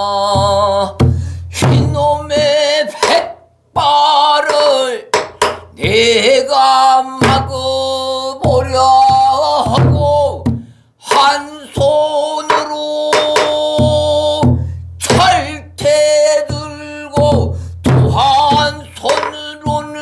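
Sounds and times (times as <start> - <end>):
man singing held notes: 0.0 - 20.0
drum stick knocks: 4.5 - 5.6
barrel drum thumps: 4.5 - 5.7, 7.2 - 7.5, 12.5 - 20.0.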